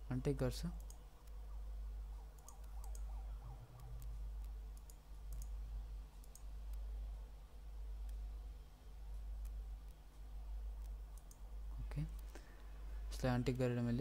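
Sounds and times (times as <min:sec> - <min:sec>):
low electrical hum: 0:00.0 - 0:14.0
computer mouse clicking: 0:00.8 - 0:01.4, 0:02.3 - 0:03.1, 0:03.7 - 0:06.9, 0:08.0 - 0:08.2, 0:09.1 - 0:11.4.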